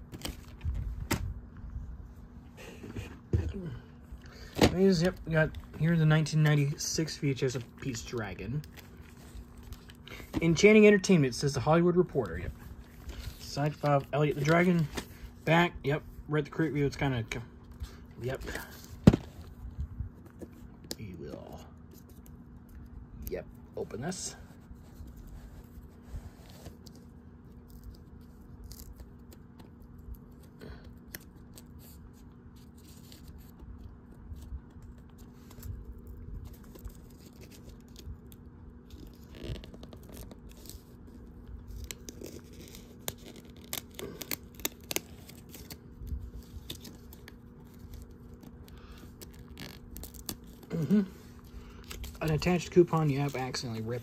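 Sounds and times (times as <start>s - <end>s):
paper tearing: 38.9s - 54.0s.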